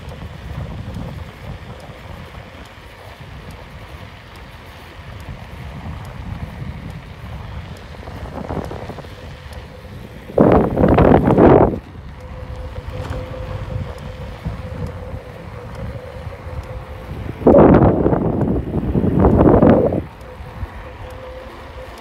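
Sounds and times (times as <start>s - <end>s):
wind noise on microphone: 0.0s - 22.0s
loud rushes of wind: 5.2s - 22.0s.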